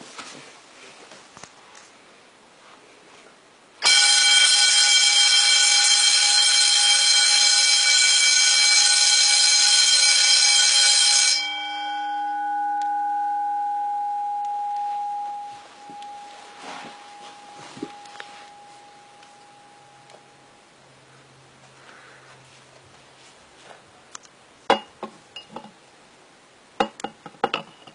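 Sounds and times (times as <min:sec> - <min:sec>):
fire alarm bell ringing: 0:03.8 - 0:20.5.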